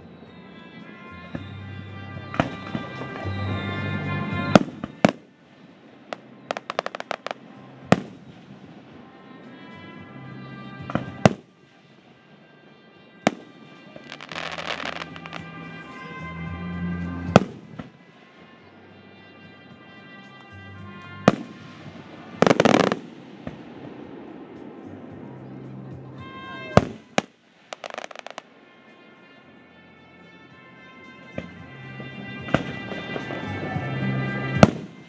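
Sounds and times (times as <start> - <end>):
music playing: 0.0 - 35.0
fireworks crackling pops: 2.2 - 9.6, 10.8 - 12.3, 13.2 - 16.2, 17.2 - 18.3, 20.3 - 25.0, 26.2 - 28.5, 31.3 - 35.0
fireworks shells bursting: 2.3 - 9.0, 13.3 - 16.1, 21.0 - 24.6, 26.8 - 28.4.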